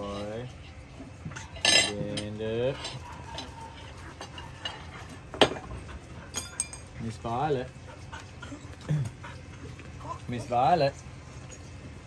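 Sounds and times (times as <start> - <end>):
cutlery and dishes clinking: 1.4 - 3.6, 6.3 - 6.9.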